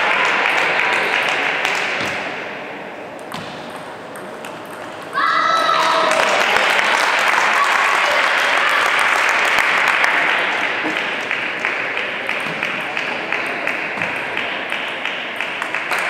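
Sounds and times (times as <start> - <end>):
applause: 0.0 - 2.1, 5.7 - 16.0.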